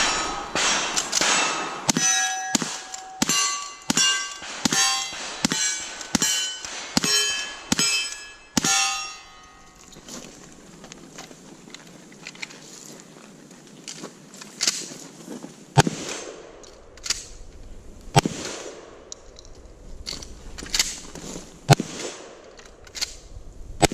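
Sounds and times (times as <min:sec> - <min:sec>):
rifle shots: 0:00.0 - 0:09.8, 0:15.8 - 0:17.3, 0:18.1 - 0:19.1, 0:21.7 - 0:22.5
steel target clanging: 0:00.0 - 0:10.3.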